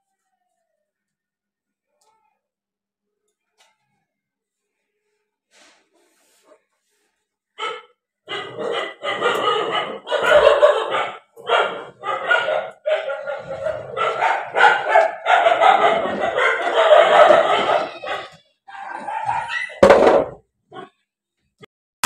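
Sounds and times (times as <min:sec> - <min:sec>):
dog barking: 0:07.6 - 0:20.0.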